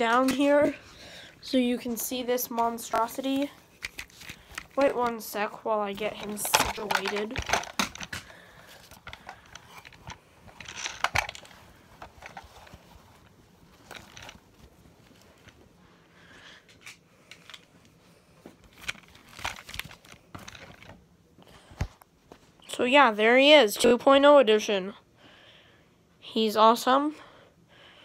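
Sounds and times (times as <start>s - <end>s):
puppet handling taps and rustling: 0.0s - 0.8s, 1.8s - 15.7s, 16.7s - 21.0s.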